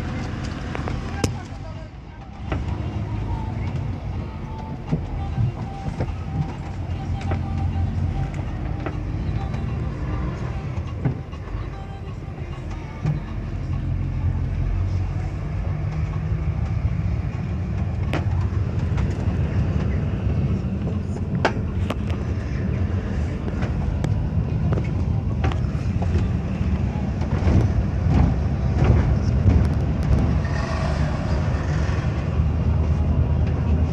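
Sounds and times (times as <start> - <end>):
bus engine droning: 0.0 - 33.9
bus body knocks and rattles: 15.8 - 22.3, 23.4 - 30.4.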